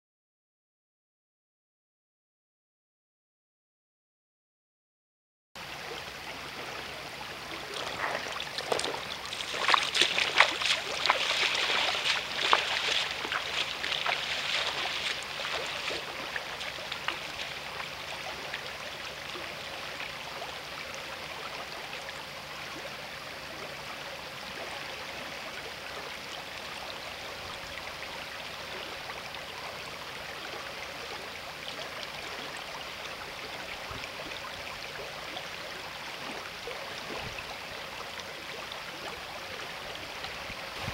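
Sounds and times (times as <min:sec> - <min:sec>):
river flowing over stones: 0:05.6 - 0:40.9
splashing and crackling: 0:07.6 - 0:18.6.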